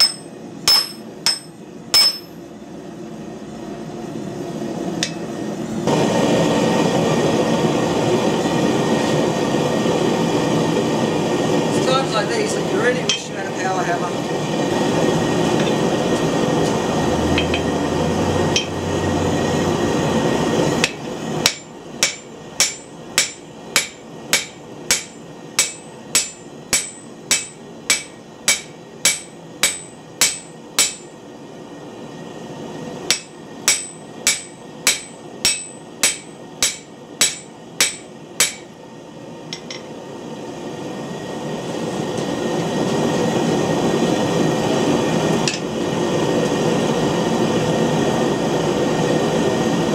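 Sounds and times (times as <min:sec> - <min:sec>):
hammer ringing on anvil: 0:00.0 - 0:02.4, 0:20.8 - 0:31.1, 0:33.1 - 0:38.7.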